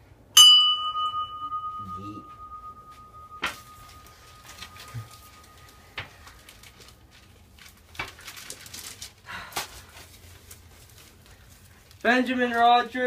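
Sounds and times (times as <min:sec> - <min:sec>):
rustle of handling: 0:03.5 - 0:13.0.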